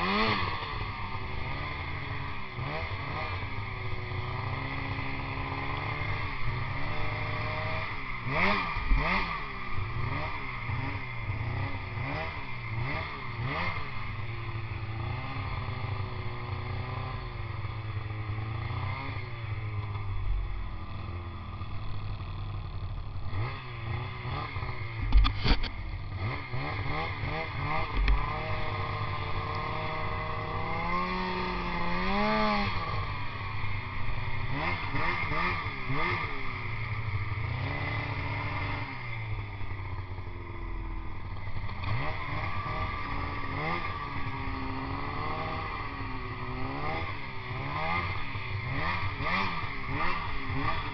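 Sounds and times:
snowmobile engine revving: 0.0s - 50.9s.

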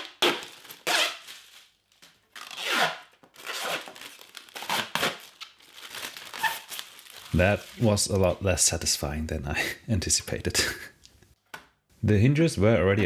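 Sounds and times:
plastic film peeling off: 0.0s - 8.4s
plastic crinkling: 0.0s - 8.6s.

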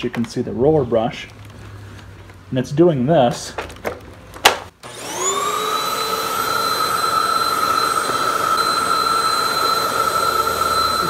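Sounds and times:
vacuum cleaner motor whining: 4.8s - 11.0s.

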